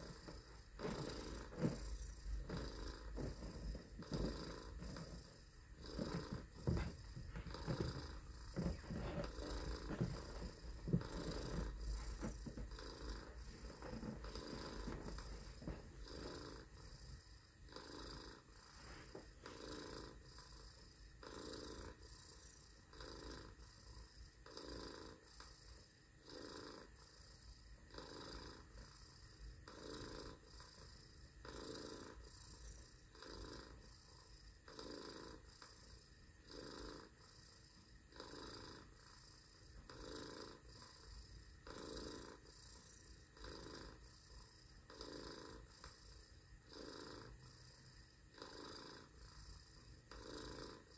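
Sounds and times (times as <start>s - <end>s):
person imitating cat purr: 0.0s - 16.7s, 43.3s - 45.8s.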